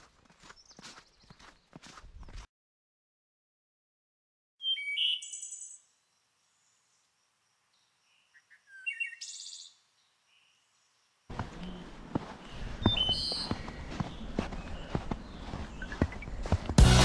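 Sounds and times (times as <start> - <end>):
songbird chirping and trilling: 0.4 - 2.4, 4.6 - 16.7
footsteps: 11.3 - 17.0.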